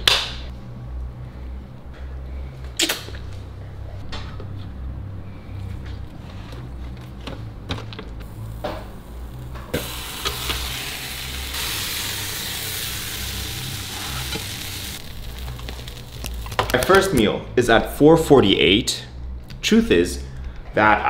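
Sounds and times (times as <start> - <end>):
wrap sizzling on contact grill: 8.2 - 16.8.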